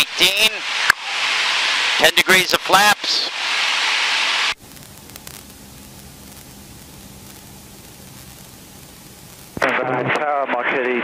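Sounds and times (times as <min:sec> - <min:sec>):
faint low engine drone: 0:04.6 - 0:10.2.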